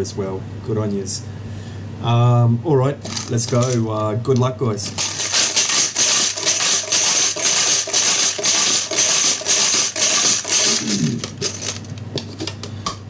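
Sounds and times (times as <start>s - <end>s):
plastic chips rattling in a jar: 3.1s - 3.8s, 5.0s - 12.0s.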